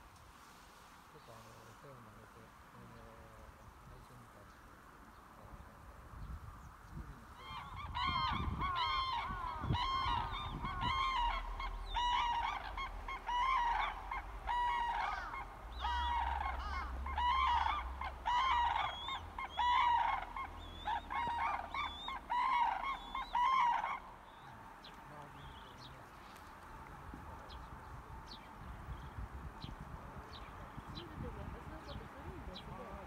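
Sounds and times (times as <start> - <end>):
cranes trumpeting calls: 7.3 - 25.7.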